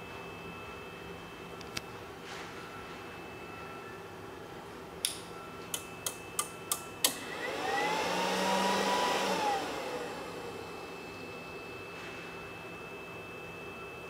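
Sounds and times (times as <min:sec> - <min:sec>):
sharp relay clicks: 0:05.0 - 0:07.2
fan rushing: 0:06.0 - 0:11.8.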